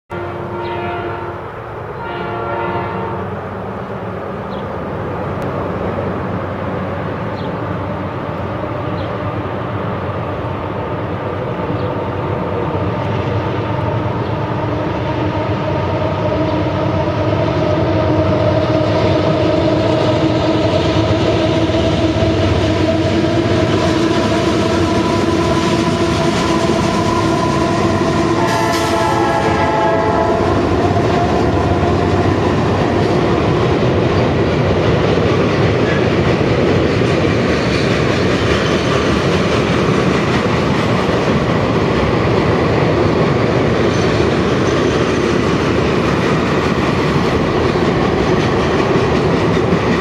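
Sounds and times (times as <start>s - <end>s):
train horn: 0.1s - 3.5s, 13.6s - 33.2s
diesel locomotives rumbling: 0.1s - 50.0s.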